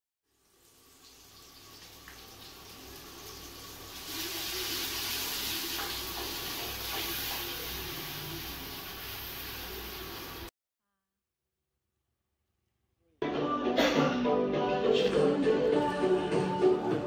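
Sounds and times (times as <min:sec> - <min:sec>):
food sizzling in oil: 0:00.3 - 0:10.5.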